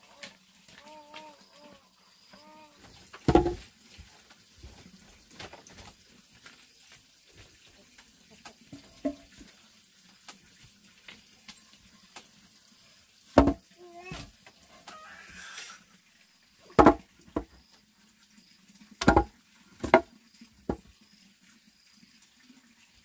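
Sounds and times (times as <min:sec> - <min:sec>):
short animal call: 0:14.8 - 0:15.8.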